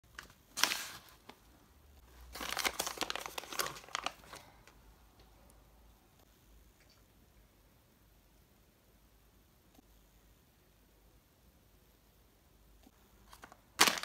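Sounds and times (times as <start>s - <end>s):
paper package crinkling: 0.1s - 1.5s, 2.2s - 4.7s, 13.2s - 14.0s.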